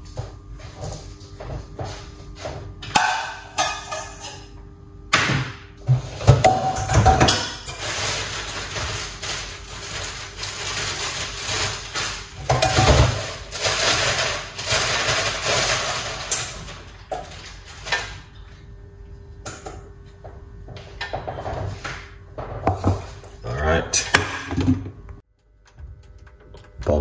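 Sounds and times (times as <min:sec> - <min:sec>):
pots and utensils clattering: 0:00.8 - 0:04.6, 0:05.2 - 0:18.5, 0:20.7 - 0:23.2.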